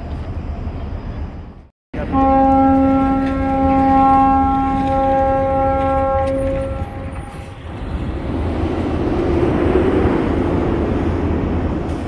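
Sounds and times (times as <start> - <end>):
ship's horn blast: 2.0 - 7.5.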